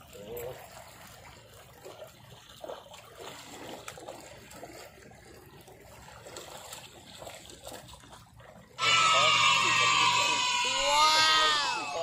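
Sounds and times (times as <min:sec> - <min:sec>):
waves lapping among rocks: 0:00.0 - 0:08.8.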